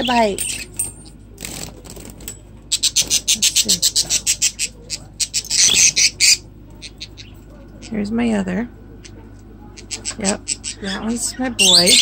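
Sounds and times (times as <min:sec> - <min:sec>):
budgerigars fluttering: 0:01.4 - 0:07.9
budgerigars calling: 0:02.7 - 0:08.0, 0:09.8 - 0:12.0.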